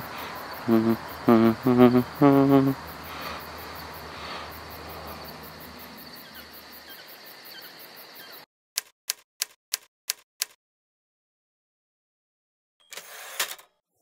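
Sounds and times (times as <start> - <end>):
crickets chirping: 0.0 - 8.5.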